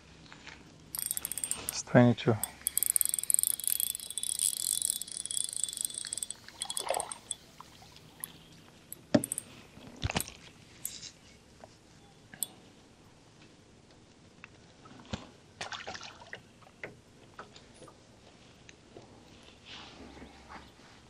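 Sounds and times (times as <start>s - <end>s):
sharp clicks and knocks: 1.0s - 7.4s, 8.2s - 10.3s
fishing reel whirring: 1.0s - 9.5s.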